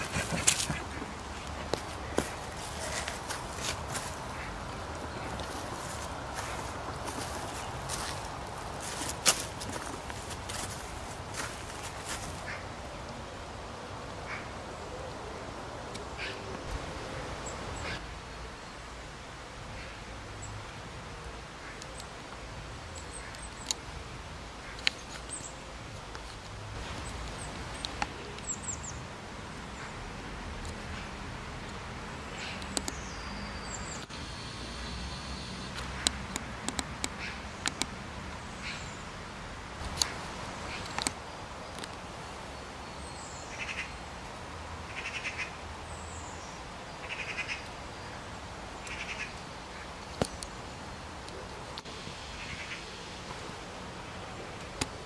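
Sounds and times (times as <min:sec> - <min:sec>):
small birds chirping: 0:00.0 - 0:19.0, 0:19.7 - 0:39.2
background hiss and low rumble: 0:00.0 - 0:55.0
sharp clicks: 0:35.8 - 0:37.9.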